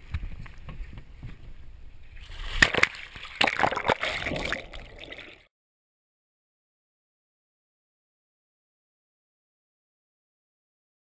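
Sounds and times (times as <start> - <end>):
lake water splashing: 2.2 - 5.5.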